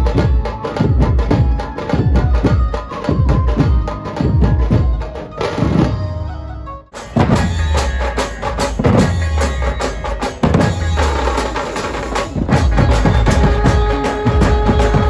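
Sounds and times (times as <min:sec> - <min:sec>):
band drumming over loudspeakers: 0:07.0 - 0:15.0.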